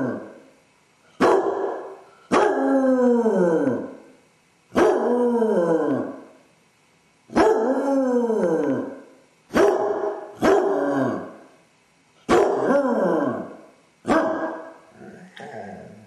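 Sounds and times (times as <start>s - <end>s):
dog baying howling barks: 1.2s - 2.8s, 4.8s - 6.2s, 7.3s - 8.9s, 9.5s - 11.3s, 12.3s - 13.4s, 14.1s - 14.7s.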